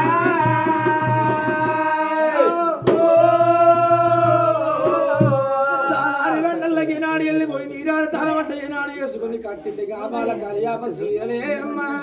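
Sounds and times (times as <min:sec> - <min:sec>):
male chorus singing long notes: 0:00.0 - 0:06.4.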